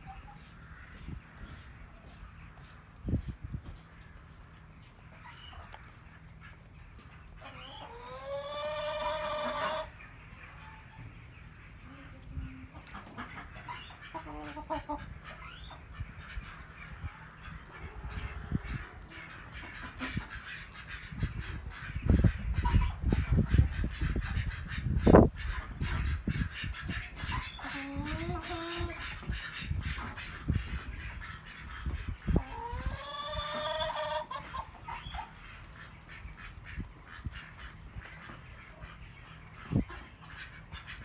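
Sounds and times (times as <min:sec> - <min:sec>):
chickens clucking: 0:00.0 - 0:41.0
chicken long rising call: 0:07.6 - 0:09.9, 0:32.4 - 0:34.7.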